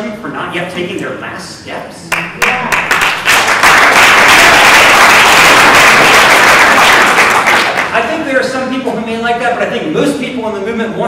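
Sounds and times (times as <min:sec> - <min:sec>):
audience applauding: 0:02.4 - 0:08.0.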